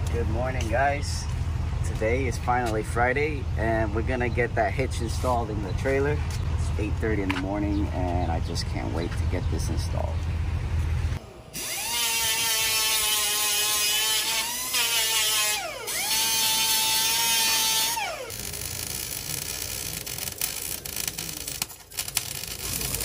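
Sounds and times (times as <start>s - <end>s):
pneumatic grinder whining: 11.5s - 23.0s
welding arc crackling: 11.5s - 23.0s.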